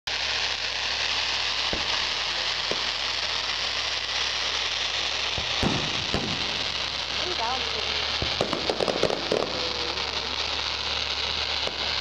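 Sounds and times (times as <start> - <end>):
fireworks crackling: 0.1 - 12.0
dull thumps of firework shells: 5.4 - 6.7, 8.2 - 9.5.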